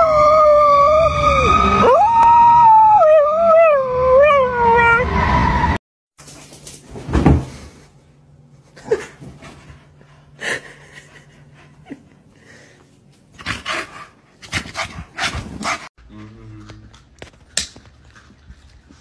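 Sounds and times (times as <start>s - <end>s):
dog howling: 0.0s - 5.3s
siren: 0.0s - 5.8s.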